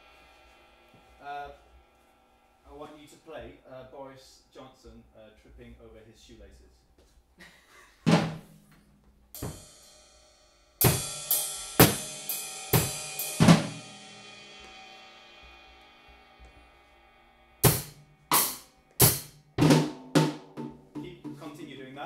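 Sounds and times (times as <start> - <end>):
cymbal crashes: 0.0 - 3.2, 9.4 - 21.7
drum hits: 8.1 - 8.6, 9.4 - 9.8, 10.8 - 14.8, 17.6 - 21.8.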